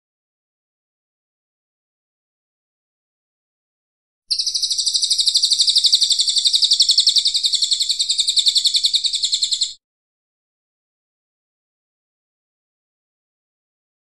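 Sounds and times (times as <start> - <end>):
bird singing fast high trill: 4.3 - 9.8.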